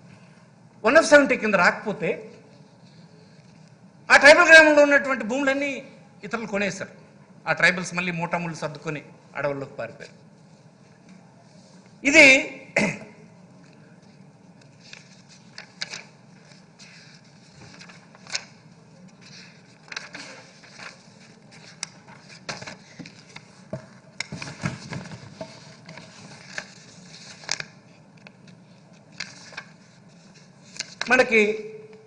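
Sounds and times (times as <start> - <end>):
paper rustling and crackling: 13.6 - 31.3.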